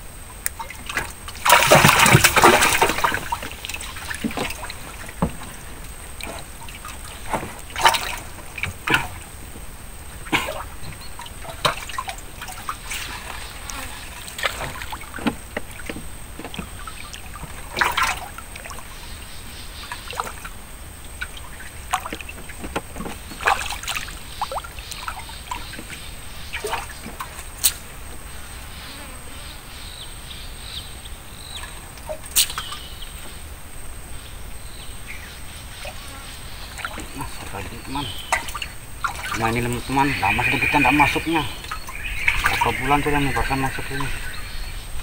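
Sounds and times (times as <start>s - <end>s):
paddle splashes: 0.0s - 28.5s, 35.0s - 45.0s
water dripping: 0.3s - 19.0s, 19.8s - 28.2s, 36.7s - 45.0s.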